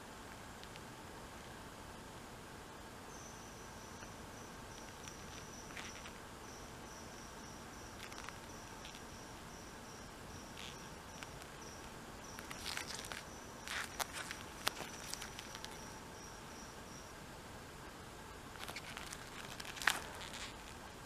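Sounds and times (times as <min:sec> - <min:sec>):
soft outdoor hiss: 0:00.0 - 0:21.0
high-pitched insect trill: 0:03.0 - 0:17.3, 0:18.5 - 0:21.0
soft rustles: 0:04.0 - 0:09.6, 0:10.4 - 0:16.0, 0:18.5 - 0:21.0.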